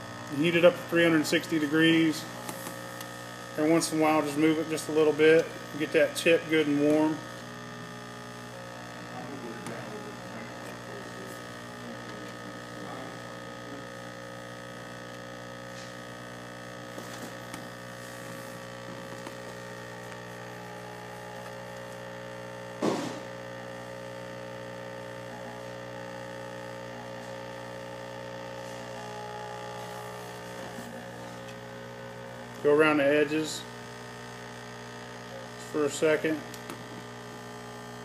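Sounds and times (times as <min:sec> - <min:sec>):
hot-air machine humming: 0:00.0 - 0:38.0
sharp knock: 0:22.8 - 0:23.2.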